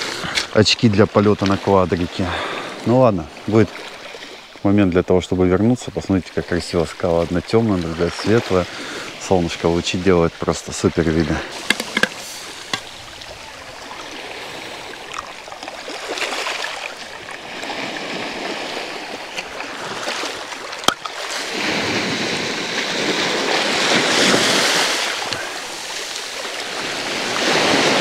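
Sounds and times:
sea waves washing over pebbles: 5.8 - 28.0.

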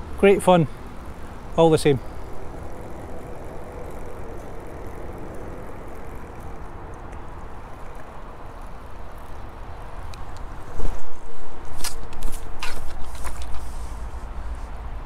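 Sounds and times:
fishing reel winding: 0.3 - 10.5.

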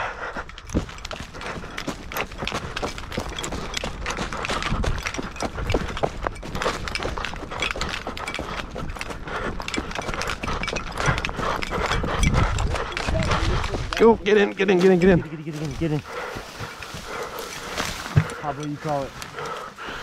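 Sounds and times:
quick footsteps: 0.0 - 20.0
rustling: 12.8 - 20.0.

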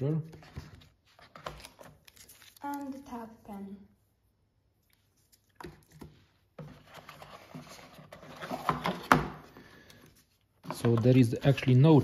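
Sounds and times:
cardboard scraping and rustling: 6.6 - 9.2.

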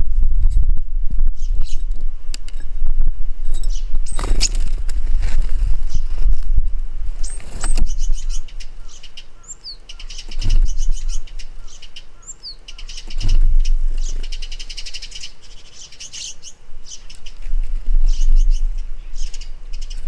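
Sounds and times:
low rumble: 0.0 - 7.2
birds chirping: 1.2 - 2.0, 3.4 - 5.1, 5.7 - 20.0.

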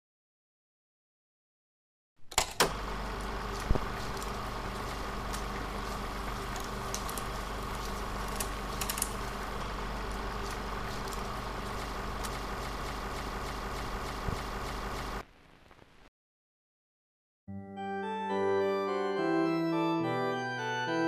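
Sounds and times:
low electrical hum: 2.3 - 16.1.

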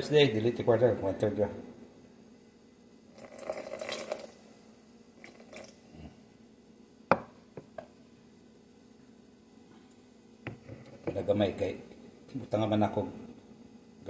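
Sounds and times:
wet pouring squish: 3.2 - 4.4, 5.2 - 5.8.

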